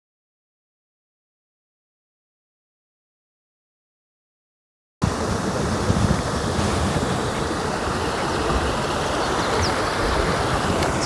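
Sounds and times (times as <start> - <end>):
wind buffeting microphone: 5.0 - 11.0.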